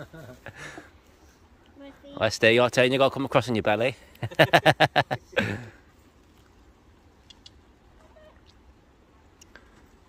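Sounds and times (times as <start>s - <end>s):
faint stream trickling: 5.1s - 10.0s
soft ticks: 7.2s - 7.6s, 9.3s - 9.8s.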